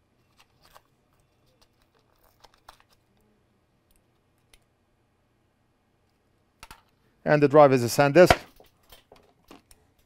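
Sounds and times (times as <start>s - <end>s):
light crinkles of packaging: 0.2s - 3.3s.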